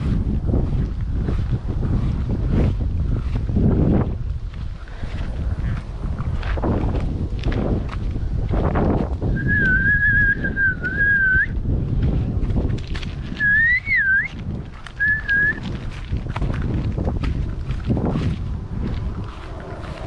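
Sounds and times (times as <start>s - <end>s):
footsteps: 0.0s - 20.0s
wind buffeting microphone: 0.0s - 20.0s
person whistling: 9.3s - 11.6s, 13.4s - 14.4s, 15.0s - 15.6s.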